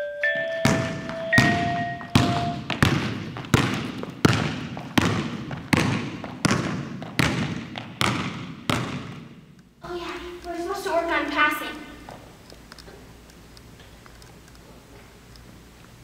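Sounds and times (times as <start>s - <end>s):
bell-like musical tones: 0.0s - 2.7s
basketball bouncing on wooden floor: 0.4s - 9.6s.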